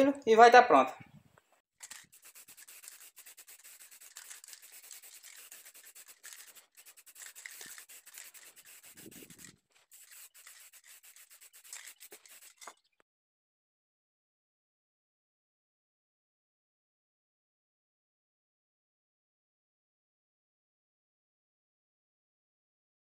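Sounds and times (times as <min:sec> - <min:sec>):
cloth rag rubbing on wood: 0:01.9 - 0:12.7.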